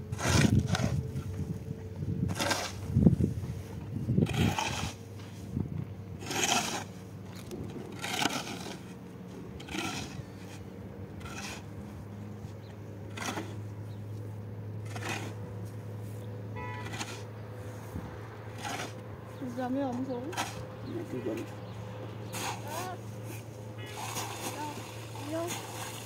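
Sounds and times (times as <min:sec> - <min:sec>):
steady low hum: 0:00.0 - 0:26.0
slow even scraping: 0:02.3 - 0:14.2, 0:14.8 - 0:19.6.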